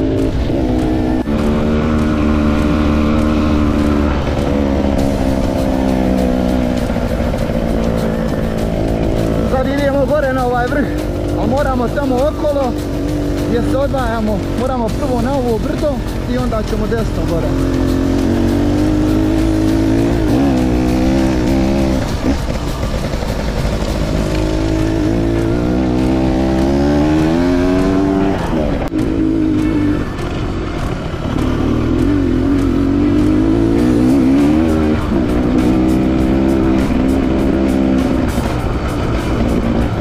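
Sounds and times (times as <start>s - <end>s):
motorcycle engine revving: 0.0s - 40.0s.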